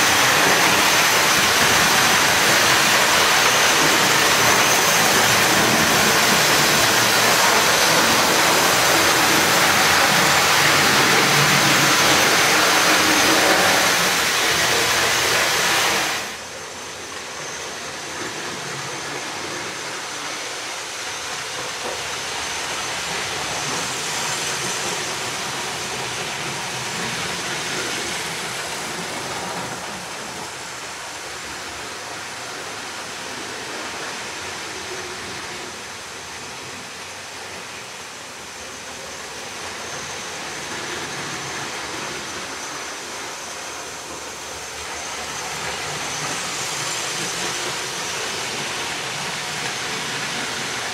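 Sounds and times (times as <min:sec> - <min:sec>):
model train rumbling on track: 0:00.0 - 0:50.9.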